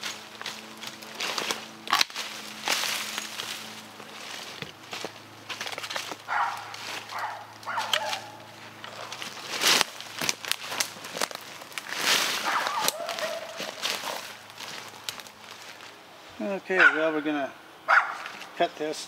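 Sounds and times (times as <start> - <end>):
loppers crunching through saplings: 0.0 - 17.0
brush and dry leaves rustling: 0.0 - 17.1, 17.9 - 19.0
dogs barking: 6.2 - 9.2, 12.4 - 13.9, 16.8 - 17.2, 17.9 - 18.3.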